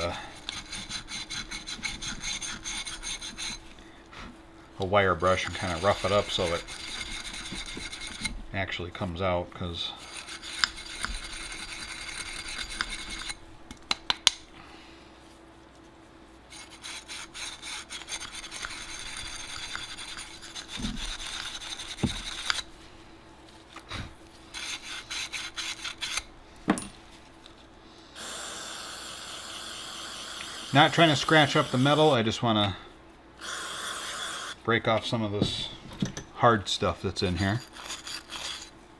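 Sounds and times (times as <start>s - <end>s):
wire brush scraping metal: 5.2s - 8.3s, 16.5s - 22.7s, 24.5s - 26.3s.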